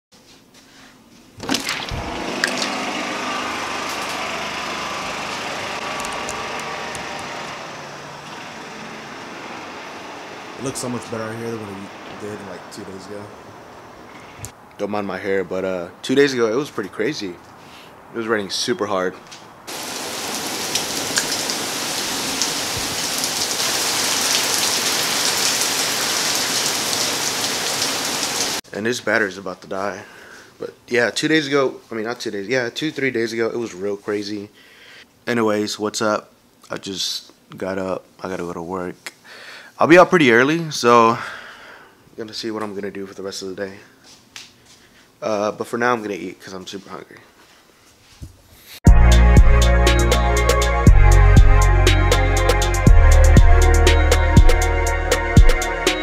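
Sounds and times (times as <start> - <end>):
heavy rain falling: 1.4 - 13.0, 19.7 - 28.6
rushing outdoor background noise: 1.9 - 23.8.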